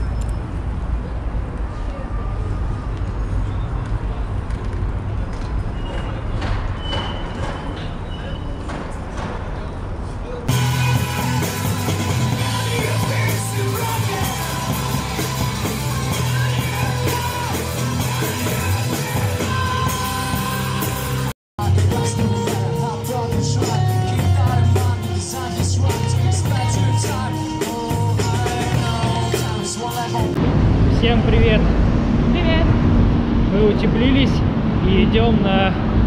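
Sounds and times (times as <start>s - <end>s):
person singing: 10.5s - 30.4s
rock band playing live: 10.5s - 30.4s.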